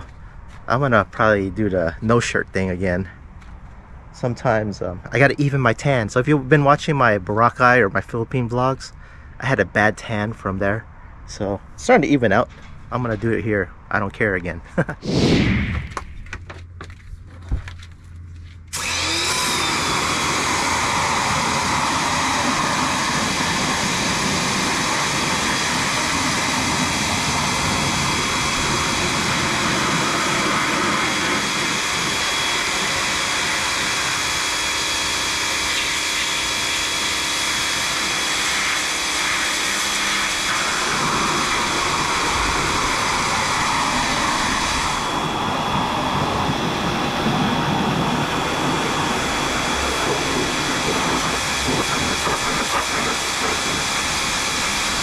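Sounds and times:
pressure washer running: 0:18.7 - 0:55.0.

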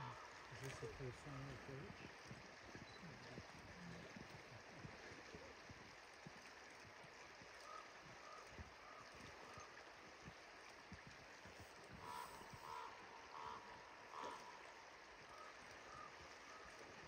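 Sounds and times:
river rushing: 0:11.6 - 0:15.7
short animal calls: 0:12.0 - 0:14.7.

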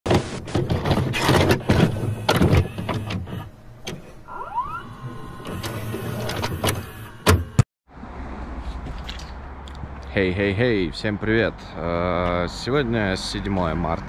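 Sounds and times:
tape transport clicks and clunks: 0:00.1 - 0:07.7
motor whine: 0:01.5 - 0:07.6.

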